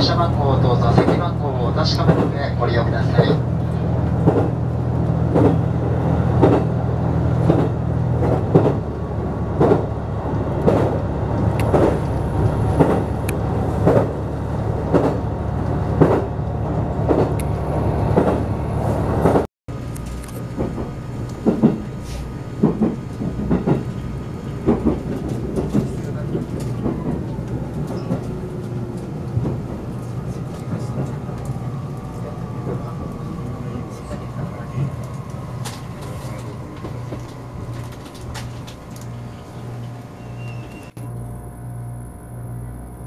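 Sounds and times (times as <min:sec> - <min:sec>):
train running noise: 0:00.0 - 0:43.0
train wheels clacking over joints: 0:02.0 - 0:04.6, 0:05.3 - 0:05.7, 0:06.3 - 0:06.7, 0:07.4 - 0:08.9, 0:09.5 - 0:09.9, 0:10.6 - 0:13.2, 0:13.8 - 0:14.2, 0:14.8 - 0:15.2, 0:16.0 - 0:16.3, 0:20.5 - 0:31.6.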